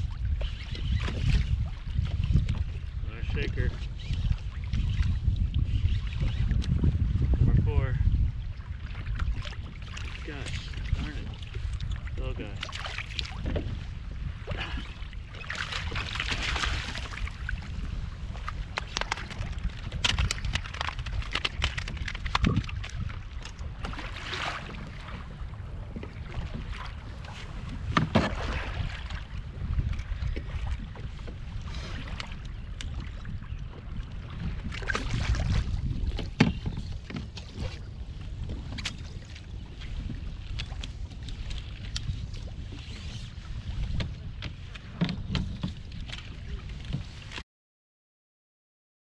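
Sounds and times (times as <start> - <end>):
water lapping against hull: 0.0 - 47.4
wind rumbling on microphone: 0.0 - 47.4
water splashing: 8.6 - 17.8, 18.4 - 25.4, 26.1 - 29.4
fishing gear clicking: 18.8 - 23.5.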